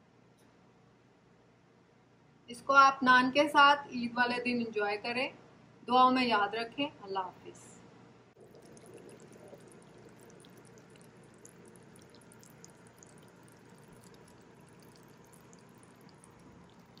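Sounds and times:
gravy simmering with pops: 8.4 - 17.0.

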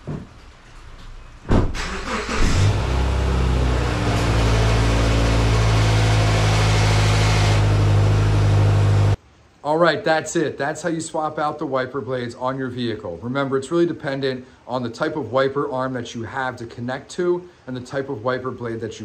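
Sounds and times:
car engine starting and idling: 1.8 - 9.2.

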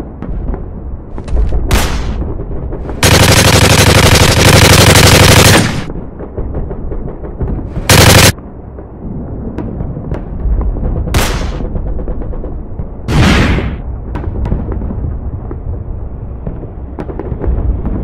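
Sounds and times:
machine-gun fire: 2.9 - 6.0, 7.7 - 8.4.

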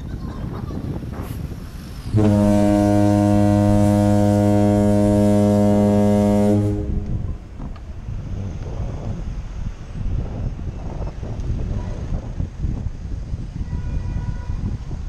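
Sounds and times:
street traffic: 0.0 - 15.0
wind: 0.0 - 15.0
low horn blast: 2.1 - 7.7.

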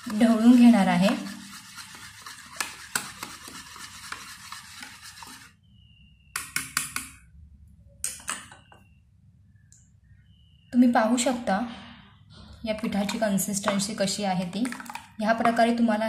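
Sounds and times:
whisk clicking against bowl: 0.0 - 5.5
whisk swishing in batter: 0.0 - 5.5.

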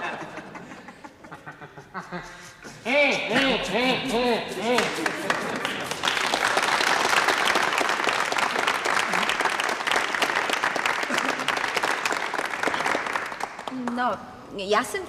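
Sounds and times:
audience applauding: 4.6 - 14.0.

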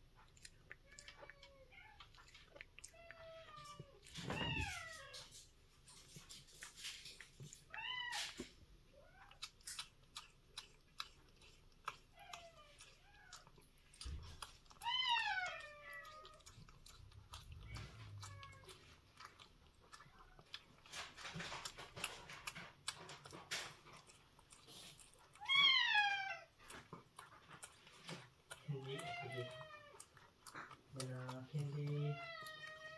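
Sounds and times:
cat chewing wet food: 0.0 - 32.9
cat meowing: 2.9 - 5.4, 14.7 - 16.4, 17.5 - 18.9, 25.4 - 26.5, 28.8 - 30.2, 31.8 - 32.9.

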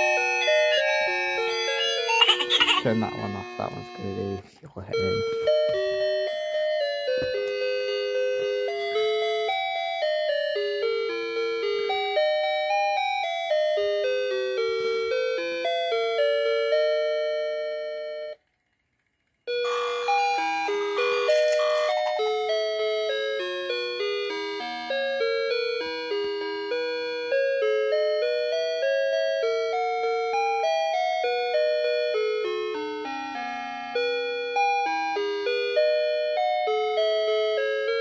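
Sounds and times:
electronic chime tune: 0.0 - 4.4, 19.6 - 22.7.

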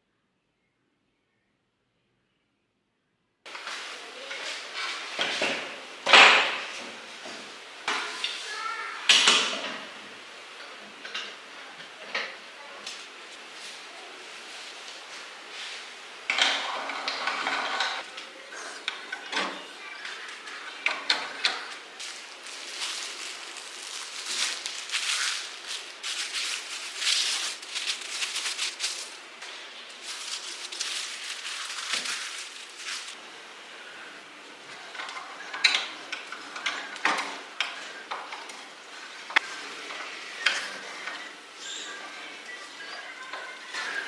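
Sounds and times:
plastic film crinkling: 21.5 - 33.2.

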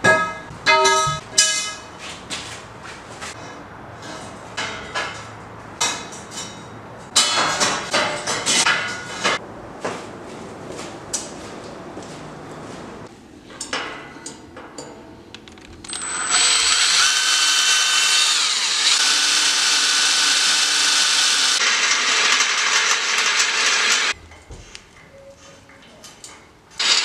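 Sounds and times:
power drill whining through steel: 15.8 - 24.2, 26.8 - 27.0.

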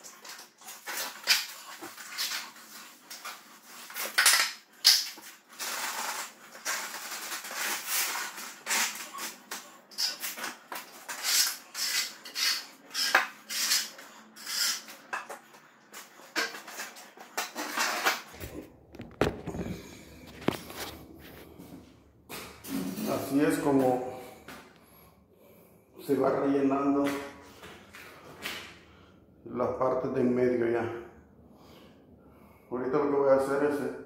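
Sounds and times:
trowel scraping wet mortar: 5.6 - 18.4
camera handling rumble: 18.3 - 21.7.

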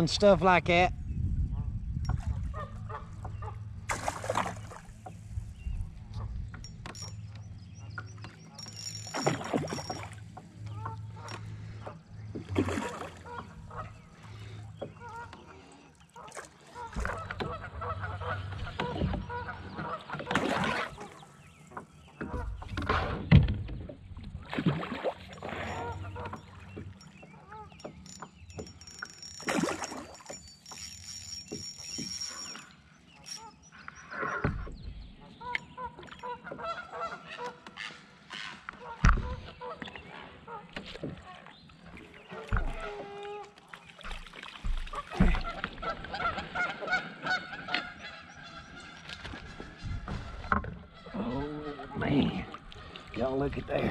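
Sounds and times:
geese honking: 16.2 - 21.2, 35.4 - 40.7, 44.9 - 49.1.

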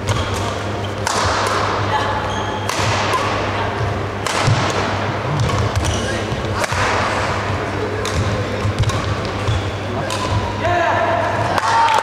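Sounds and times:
racket hitting shuttlecock: 0.0 - 1.9, 2.6 - 3.5, 4.2 - 10.6
shoes squeaking on court floor: 0.1 - 1.0, 2.2 - 2.7, 5.4 - 6.6, 8.9 - 10.5.

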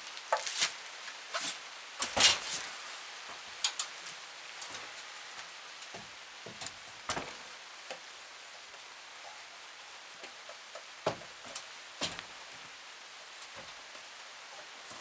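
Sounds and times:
rain hissing on a tarp: 0.0 - 15.0
wooden board knocks and bumps: 11.0 - 12.3.

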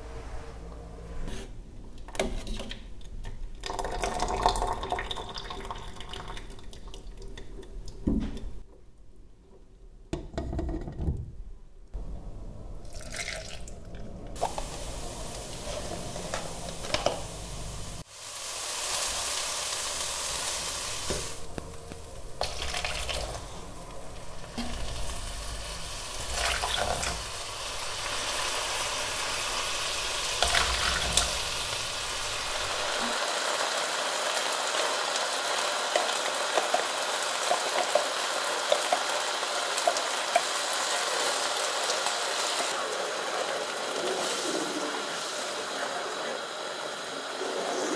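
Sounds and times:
rice sizzling in a pan: 14.4 - 47.9.

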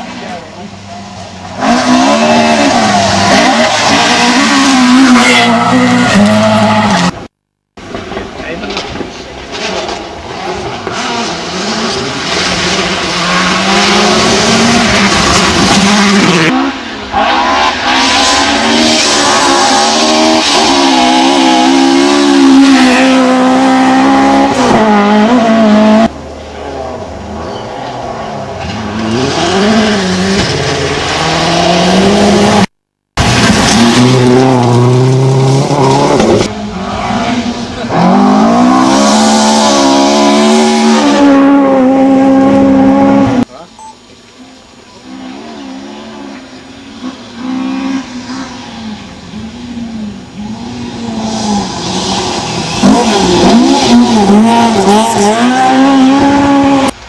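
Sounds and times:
rally car engine at full throttle: 0.0 - 57.0
engine at high revs: 17.4 - 26.1, 28.9 - 32.8, 33.6 - 43.5, 45.0 - 57.0.

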